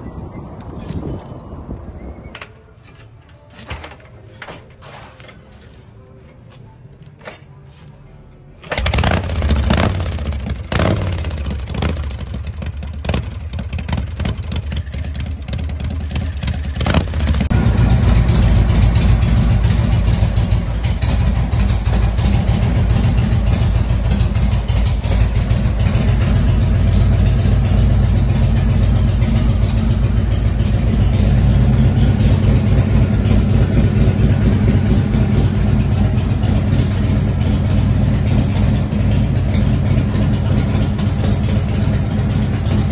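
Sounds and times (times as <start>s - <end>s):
motorcycle engine revving: 8.6s - 42.9s
motorcycle engine fast idle: 8.7s - 42.9s.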